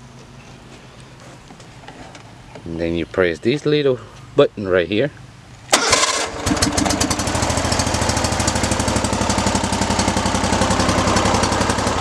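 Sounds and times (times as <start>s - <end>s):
mower engine running: 5.7s - 12.0s.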